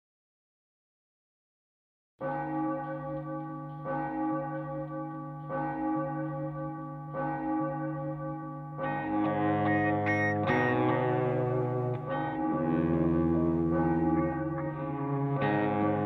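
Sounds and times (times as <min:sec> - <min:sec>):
deep bell tolling: 0:02.2 - 0:16.0
instruments playing: 0:09.5 - 0:16.0.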